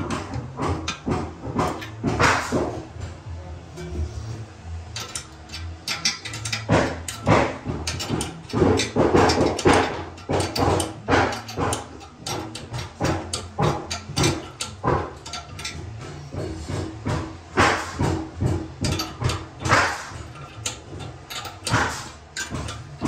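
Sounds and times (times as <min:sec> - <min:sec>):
clicking and scraping on toilet tank: 0:05.0 - 0:23.0.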